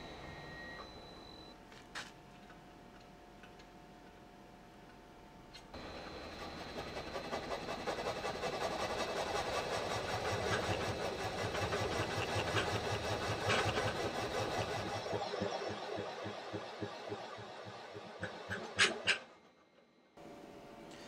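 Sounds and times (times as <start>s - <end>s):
metal cutting noise: 5.8s - 19.7s
milling spindle high whine: 5.8s - 21.0s.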